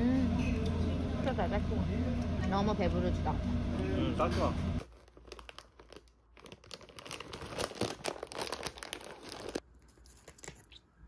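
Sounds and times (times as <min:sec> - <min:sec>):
snack bag crinkling: 0:04.8 - 0:10.8.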